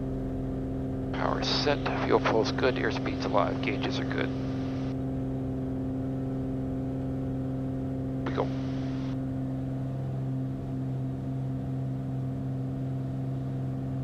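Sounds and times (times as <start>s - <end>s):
propeller plane engine droning: 0.0s - 14.0s.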